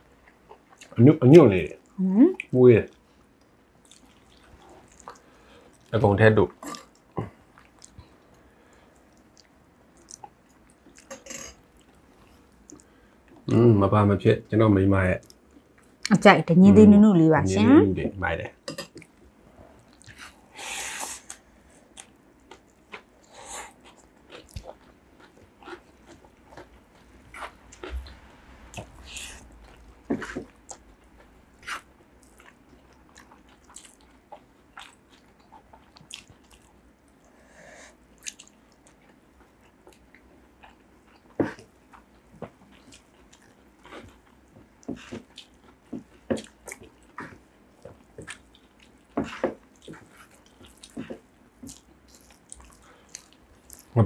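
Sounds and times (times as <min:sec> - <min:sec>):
people chewing and biting food: 0:03.8 - 0:05.9, 0:06.6 - 0:08.4, 0:18.7 - 0:54.0
mouth clicks and smacks: 0:38.2 - 0:38.6.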